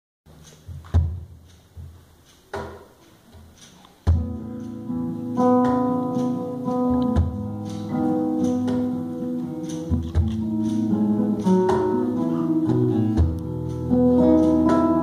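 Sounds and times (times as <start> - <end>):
acoustic guitar chords: 4.0 - 15.0
soft hits: 5.5 - 7.8.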